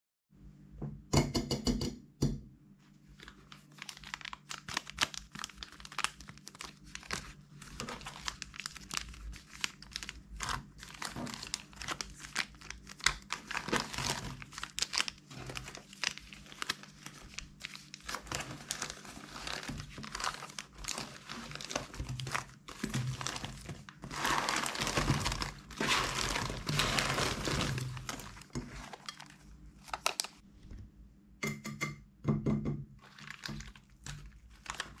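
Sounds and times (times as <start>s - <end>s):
plastic packets crinkling: 3.1s - 30.4s, 33.0s - 35.0s.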